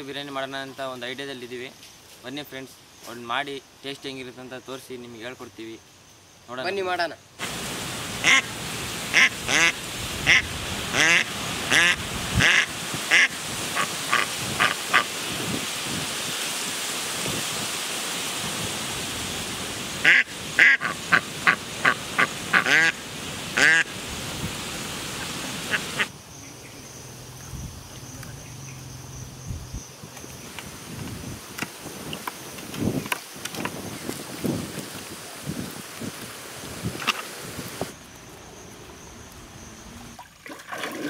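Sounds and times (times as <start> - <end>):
ducks quacking: 8.2 - 8.5, 9.1 - 15.1, 20.0 - 23.9, 25.1 - 26.1.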